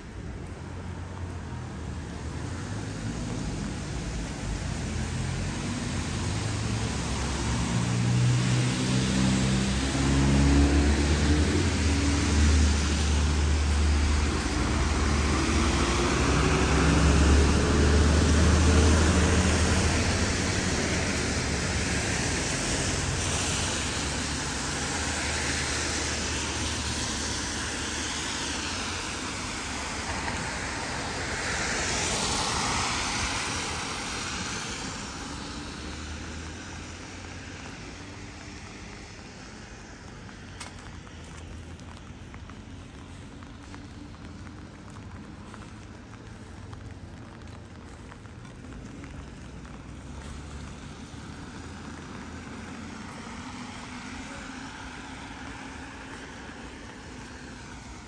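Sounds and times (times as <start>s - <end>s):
vehicle engine rumble: 0.0s - 31.3s, 31.9s - 58.0s
tyre and road noise: 0.0s - 58.0s.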